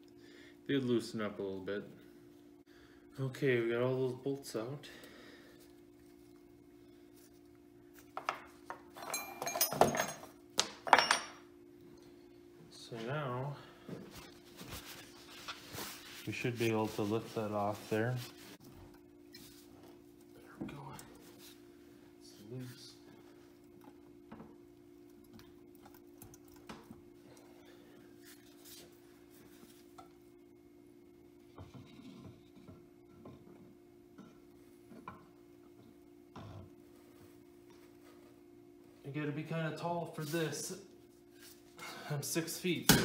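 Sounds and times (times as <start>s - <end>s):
low steady hum: 0.0s - 43.0s
bolts and nuts clinking: 8.9s - 11.4s.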